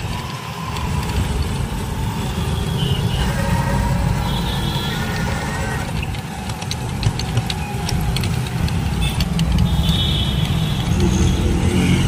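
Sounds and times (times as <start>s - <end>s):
street traffic rumble: 0.0s - 12.0s
light clicks and rattles: 5.9s - 11.1s.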